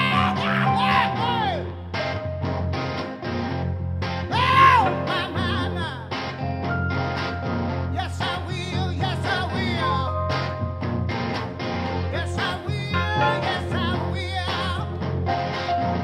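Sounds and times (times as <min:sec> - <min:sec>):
electric guitar: 0:00.0 - 0:16.0
keyboard playing: 0:00.0 - 0:16.0
steady bass: 0:00.0 - 0:16.0
wordless singing: 0:12.2 - 0:14.9.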